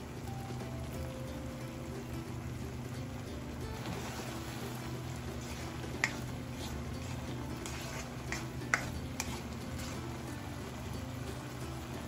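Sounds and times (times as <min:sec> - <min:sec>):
spatula stirring food in wok: 0:02.8 - 0:12.0
spatula clicking against pan: 0:06.0 - 0:06.3, 0:07.6 - 0:09.5.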